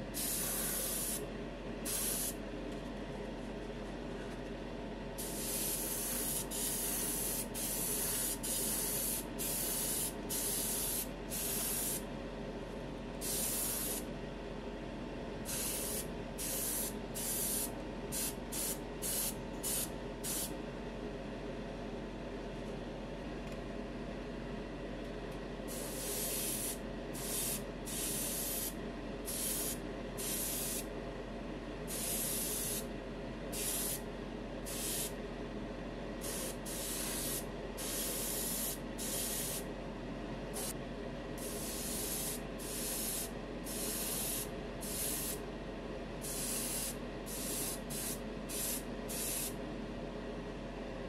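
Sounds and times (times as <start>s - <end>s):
steady hum: 0.0s - 51.0s
airbrush spraying hiss: 0.2s - 1.2s, 1.9s - 2.4s, 5.2s - 12.0s, 13.2s - 14.0s, 15.5s - 20.5s, 25.7s - 30.9s, 31.9s - 32.8s, 33.6s - 34.0s, 34.7s - 35.1s, 36.2s - 39.6s, 41.4s - 45.4s, 46.2s - 49.5s.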